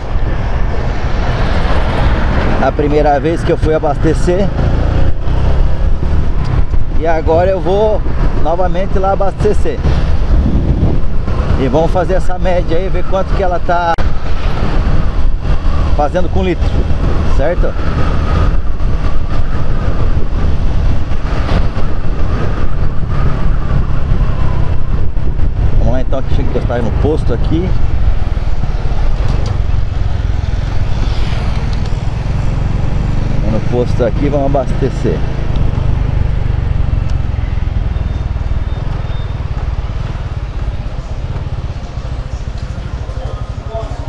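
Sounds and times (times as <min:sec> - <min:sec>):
wind buffeting microphone: 0:00.0 - 0:33.8
motorcycle engine rumble: 0:00.0 - 0:44.0.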